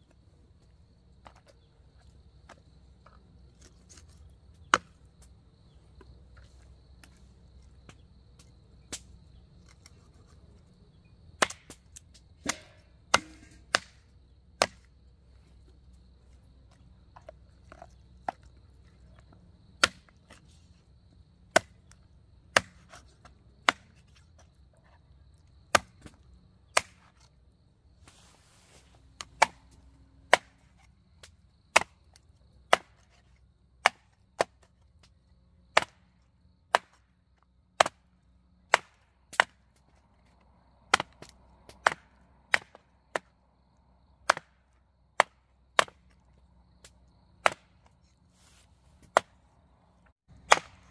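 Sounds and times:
blade chopping wood: 3.6s - 5.3s, 11.4s - 15.0s, 19.8s - 20.5s, 21.5s - 24.2s, 25.7s - 27.3s, 29.2s - 34.7s, 35.6s - 37.1s, 37.8s - 38.1s, 38.7s - 40.0s, 40.9s - 43.3s, 44.2s - 46.2s, 46.8s - 48.1s, 49.0s - 49.4s, 50.3s - 50.9s.

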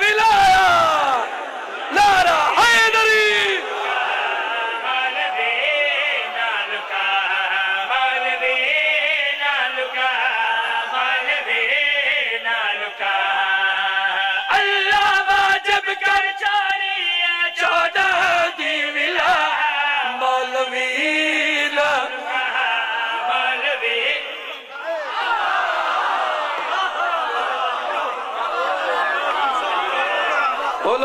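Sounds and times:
man chanting: 0.0s - 1.2s, 1.9s - 24.7s.

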